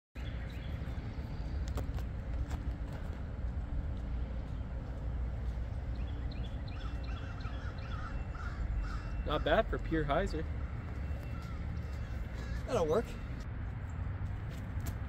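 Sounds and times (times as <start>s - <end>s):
small birds chirping: 4.4s - 13.4s.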